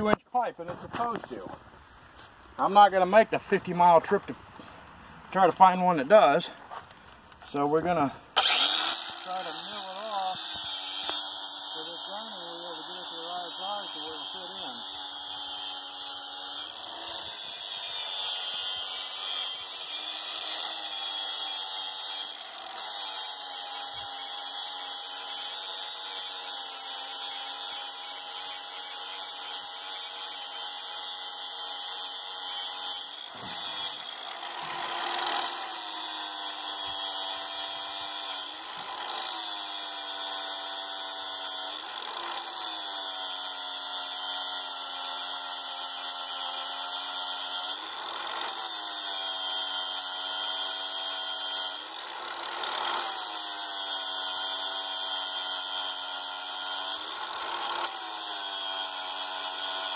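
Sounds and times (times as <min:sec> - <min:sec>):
angle grinder grinding pipe fitting: 0:08.4 - 0:44.8, 0:45.6 - 0:50.7, 0:55.5 - 0:59.9.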